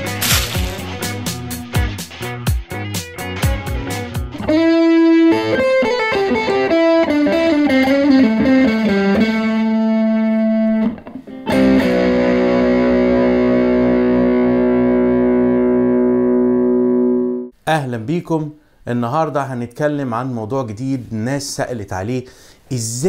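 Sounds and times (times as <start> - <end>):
distorted electric guitar: 0.0 - 2.0, 4.3 - 17.5.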